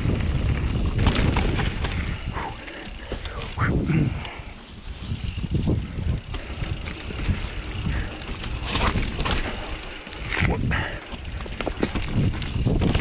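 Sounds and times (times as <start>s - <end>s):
bike tyres rumbling on trail: 0.0s - 13.0s
knocks and clicks over rocks: 0.9s - 3.5s, 6.4s - 13.0s.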